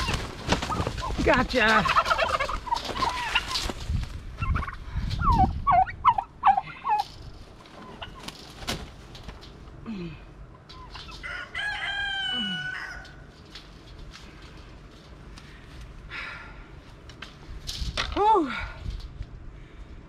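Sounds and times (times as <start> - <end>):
turkey yelping: 0.0 - 1.2, 1.8 - 3.8, 4.4 - 7.1, 7.8 - 8.4
rooster crowing: 11.2 - 13.3.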